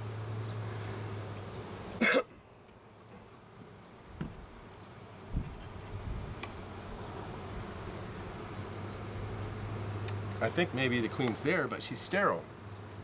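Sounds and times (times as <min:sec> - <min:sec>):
honeybees buzzing: 0:00.0 - 0:13.0
person coughing: 0:02.0 - 0:02.4.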